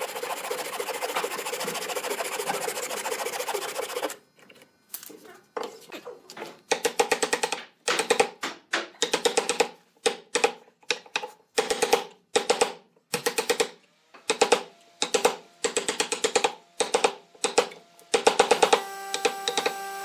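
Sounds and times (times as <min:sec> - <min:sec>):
hammer striking chisel into wood: 0:06.7 - 0:13.7, 0:14.3 - 0:19.7.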